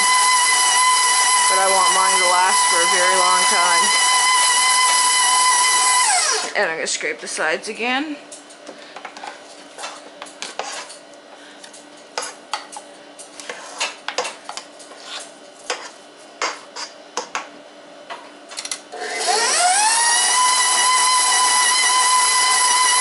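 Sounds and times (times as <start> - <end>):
stand mixer motor whine: 0.0 - 6.6, 19.0 - 23.0
spatula scraping a steel bowl: 9.8 - 11.0, 13.3 - 14.0, 14.9 - 17.0.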